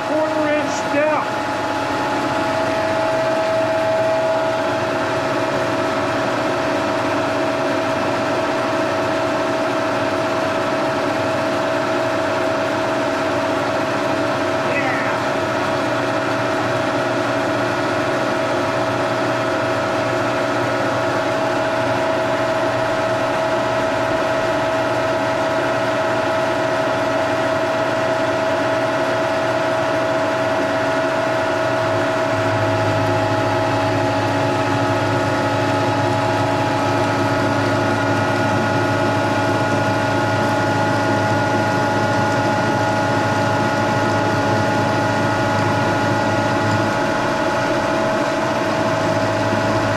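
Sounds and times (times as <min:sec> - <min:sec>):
deeper hum: 0:00.0 - 0:07.6, 0:30.3 - 0:49.9
milling machine gear whine: 0:00.0 - 0:49.9.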